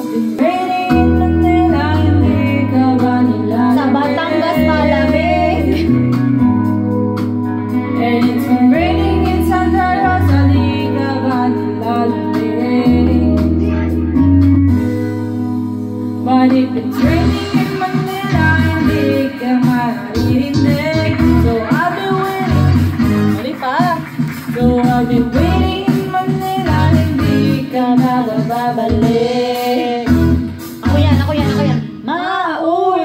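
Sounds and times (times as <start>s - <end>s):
woman singing into a microphone: 0.0s - 6.5s, 7.6s - 14.2s, 16.2s - 33.0s
backing track with bass chords: 0.0s - 32.5s.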